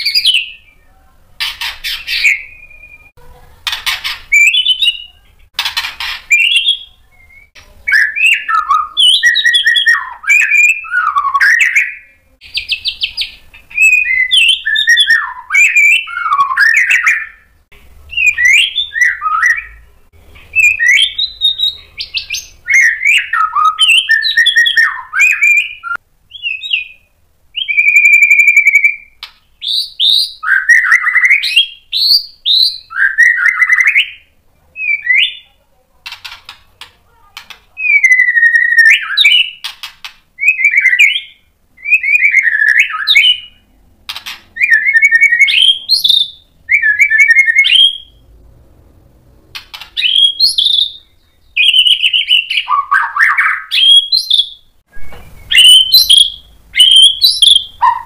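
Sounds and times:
bird singing whistled phrases: 0.0 - 1.0, 1.8 - 3.2, 4.3 - 5.2, 6.3 - 17.5, 18.1 - 19.9, 20.5 - 35.5, 37.8 - 39.7, 40.4 - 43.6, 44.6 - 48.2, 50.0 - 58.0
bird quick clicks: 39.6 - 40.2, 49.6 - 50.1.

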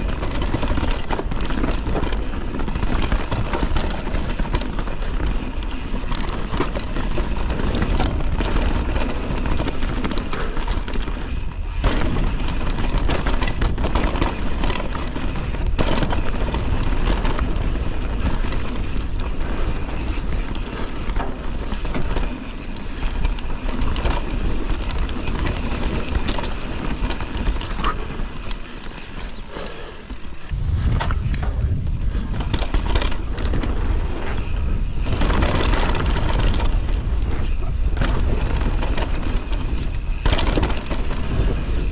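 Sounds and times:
bike knocking and rattling: 0.0 - 41.9
bike tyres on dirt: 0.0 - 41.9
wind buffeting: 23.9 - 41.9.

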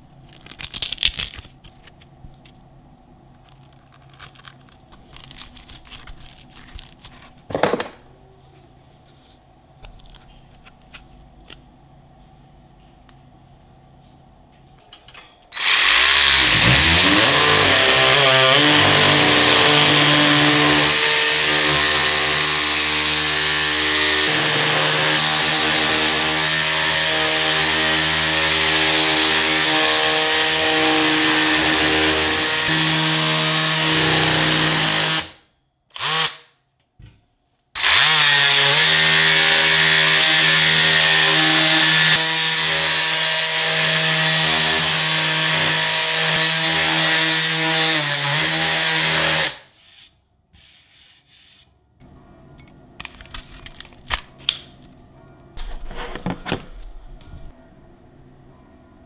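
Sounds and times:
sander motor hum: 15.6 - 34.8
sandpaper hissing on wood: 49.7 - 51.7.

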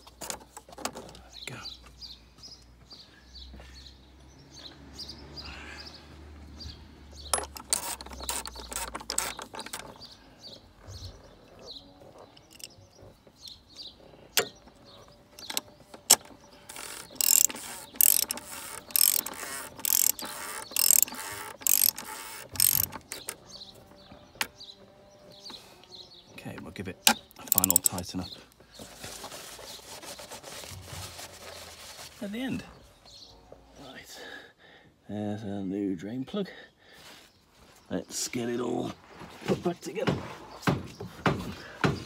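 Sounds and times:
socket ratchet clicking: 7.3 - 10.0, 12.4 - 12.8, 15.4 - 23.4, 27.1 - 28.0
metal clicks clatter: 7.3 - 10.1, 12.4 - 12.8, 15.4 - 23.4, 27.1 - 28.0.

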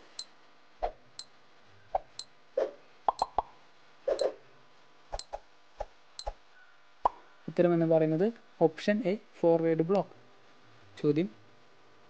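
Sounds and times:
timer pops and clicks: 3.1 - 3.5.

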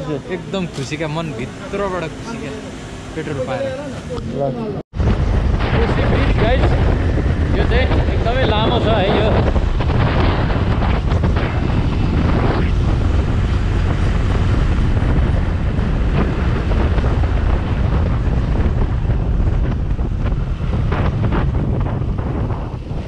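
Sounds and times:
motorcycle engine: 0.0 - 23.0
wind buffeting microphone: 4.9 - 23.0.

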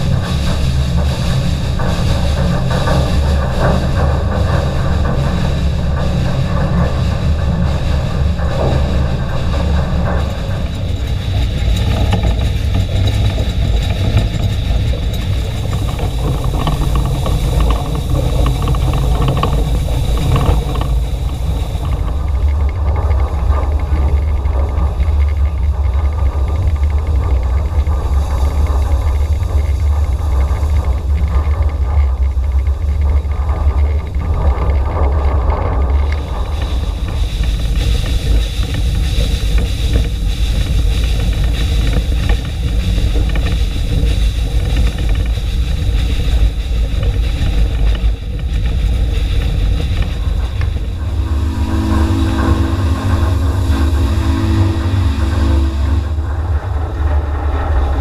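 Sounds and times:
steam locomotive rumbling: 0.0 - 58.0
low steady whistle tone: 50.8 - 57.2.

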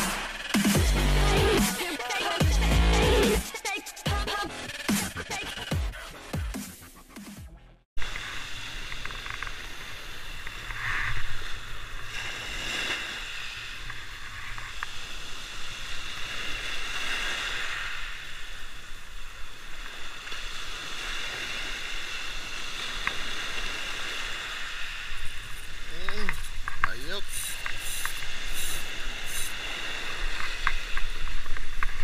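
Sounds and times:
waves breaking on rocky shore: 8.0 - 32.0
wind rumble on microphone: 27.5 - 32.0.

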